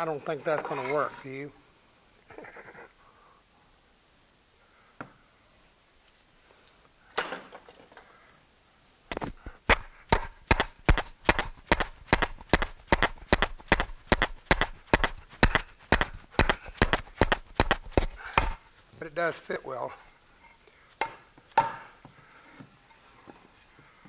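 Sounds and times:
wood scraping on wood: 0:00.3 - 0:01.5.

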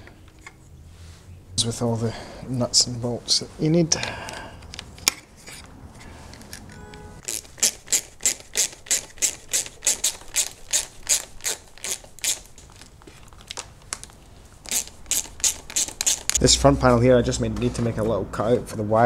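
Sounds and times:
hand ratchet clicking: 0:07.2 - 0:12.5, 0:14.7 - 0:16.4.

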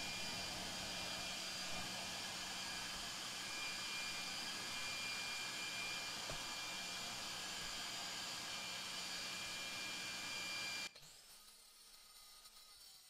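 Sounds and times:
shop vacuum running: 0:00.0 - 0:11.2.

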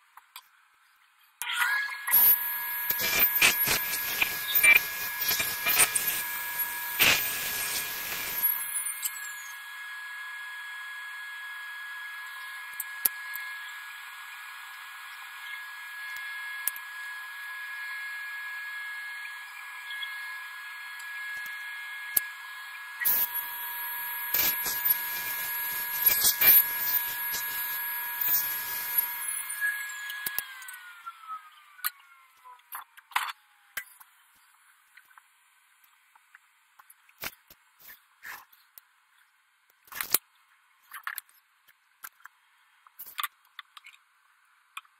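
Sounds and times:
table saw motor whine: 0:01.4 - 0:33.8
saw blade cutting wood: 0:02.1 - 0:09.5, 0:23.0 - 0:30.7.

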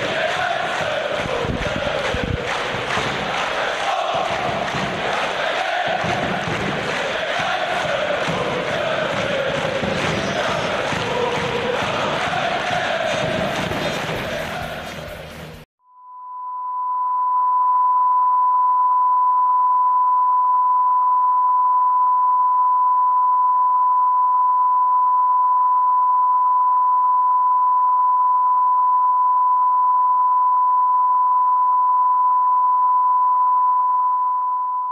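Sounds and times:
steady test tone beep: 0:15.8 - 0:34.9.

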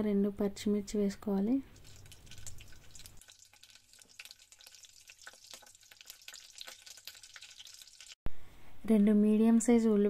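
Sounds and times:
chillies sizzling in hot oil: 0:01.7 - 0:08.2.

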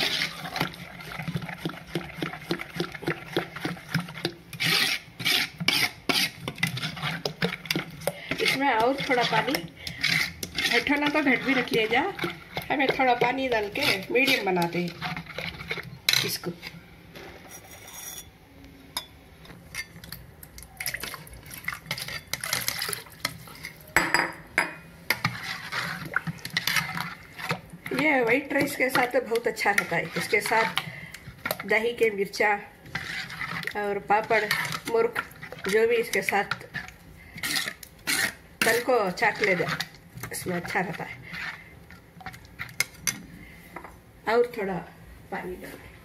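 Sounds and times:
metal spoon beating batter in bowl: 0:00.0 - 0:16.8, 0:19.0 - 0:43.2
water pouring: 0:20.8 - 0:23.6.

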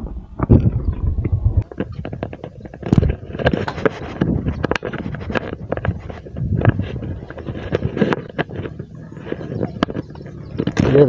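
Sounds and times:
low rumble: 0:00.0 - 0:03.4
wind buffeting microphone: 0:00.0 - 0:11.0
handling clicks and knocks: 0:01.6 - 0:11.0.

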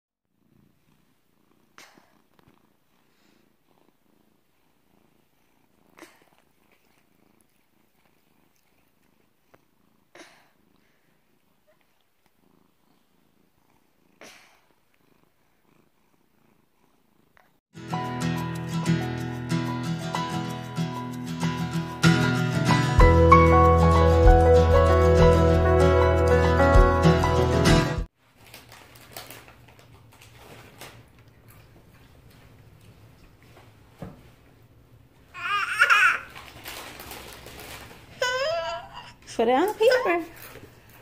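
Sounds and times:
cat purring: 0:00.3 - 0:17.6
acoustic guitar music: 0:17.8 - 0:28.1.

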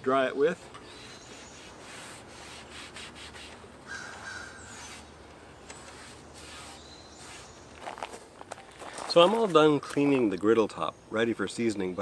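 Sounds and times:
cloth rag wiping steel griddle: 0:00.4 - 0:03.6, 0:05.8 - 0:07.6.

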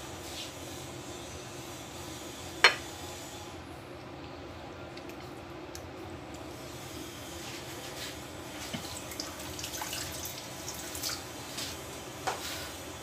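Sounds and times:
water running from a tap: 0:08.8 - 0:11.2.

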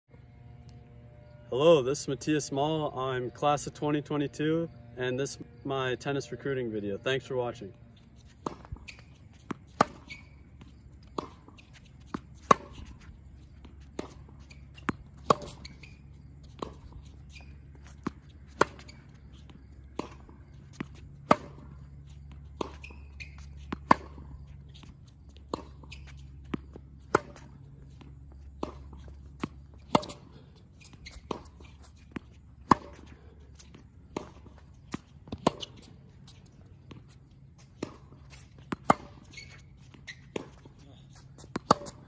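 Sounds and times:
racket hitting tennis ball: 0:08.2 - 0:42.0
ball bouncing on hard court: 0:08.4 - 0:21.7, 0:22.5 - 0:24.9, 0:25.5 - 0:27.6, 0:28.4 - 0:30.2, 0:30.8 - 0:33.1, 0:34.2 - 0:37.1, 0:37.7 - 0:42.0.

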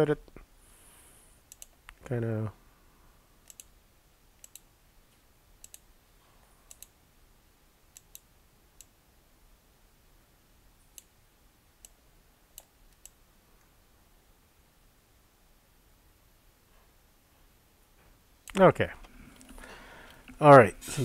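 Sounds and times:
computer mouse clicks: 0:01.5 - 0:02.0, 0:03.4 - 0:03.7, 0:04.4 - 0:04.7, 0:05.6 - 0:05.8, 0:06.7 - 0:07.0, 0:07.9 - 0:09.0, 0:11.8 - 0:13.2, 0:18.4 - 0:18.6.

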